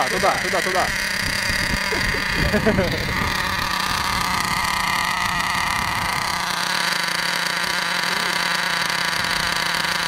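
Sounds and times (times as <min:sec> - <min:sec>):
rc car engine buzzing: 0:00.0 - 0:10.0.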